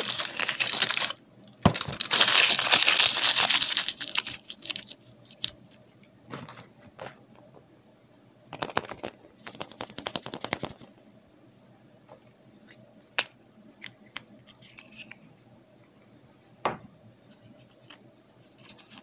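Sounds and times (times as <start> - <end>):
foil wrapper crinkling: 0.0 - 5.8, 8.6 - 10.9.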